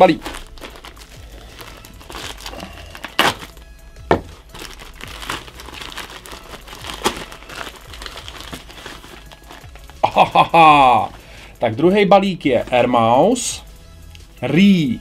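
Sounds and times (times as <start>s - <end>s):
plastic shipping bag crinkling: 0.0s - 10.3s.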